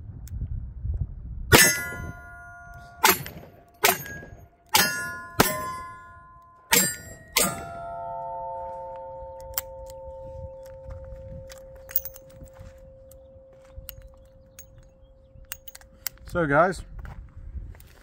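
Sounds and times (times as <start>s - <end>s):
steel plate target ringing: 1.5s - 14.1s.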